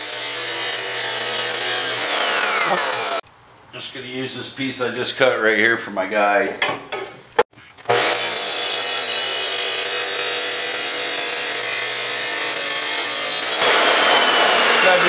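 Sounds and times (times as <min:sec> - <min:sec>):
chop saw cutting metal: 0:00.0 - 0:03.2, 0:07.8 - 0:15.0.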